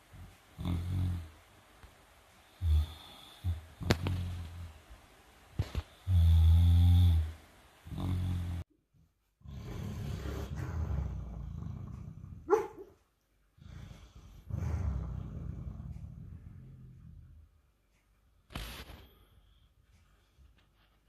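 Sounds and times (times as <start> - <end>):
dog snoring: 0.1 - 1.4, 2.5 - 4.7, 5.6 - 8.7, 9.4 - 12.7, 13.6 - 17.4.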